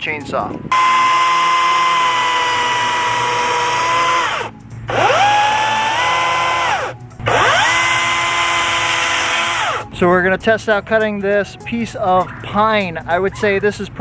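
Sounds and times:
electric chainsaw whining: 0.7s - 9.9s.

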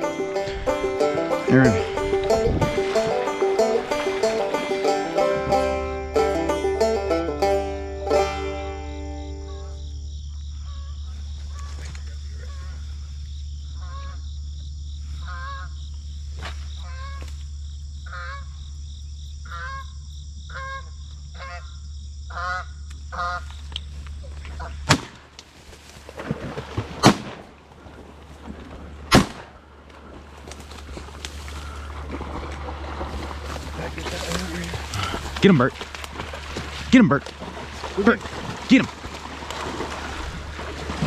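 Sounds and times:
geese honking: 0.0s - 9.8s, 22.3s - 23.5s
shotgun shots: 29.1s - 29.5s.

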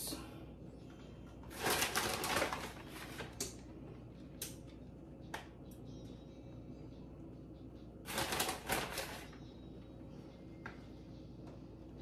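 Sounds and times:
plastic bag crinkling: 1.5s - 3.4s, 8.1s - 9.3s.

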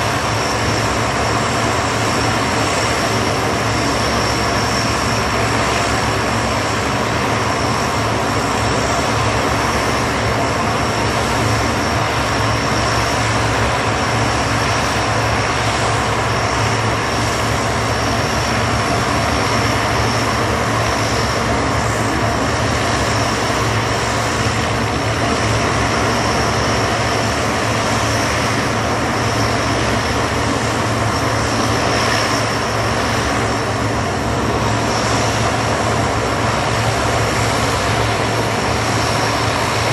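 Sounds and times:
turboprop engines droning: 0.0s - 39.9s.

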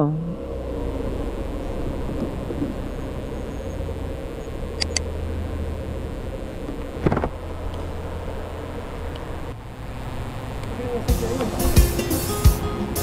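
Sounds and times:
motorcycle engine running: 10.4s - 13.0s.

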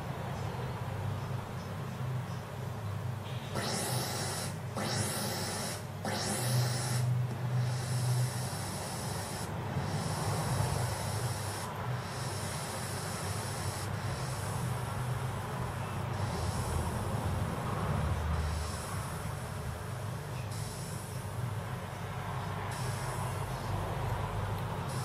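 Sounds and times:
steady low hum: 0.0s - 25.0s
sound chip noise bursts: 3.6s - 15.1s, 15.8s - 17.1s.

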